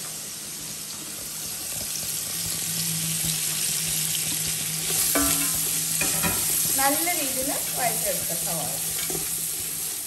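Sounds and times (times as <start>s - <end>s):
onions sizzling in oil: 0.0s - 10.0s.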